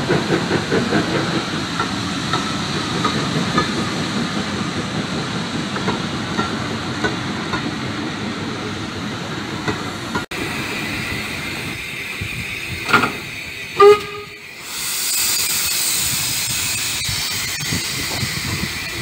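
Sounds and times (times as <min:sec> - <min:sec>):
hiss of steam: 0:00.0 - 0:19.0
railway coach rolling on rails: 0:00.0 - 0:19.0
steam locomotive whistle toot: 0:11.1 - 0:18.3.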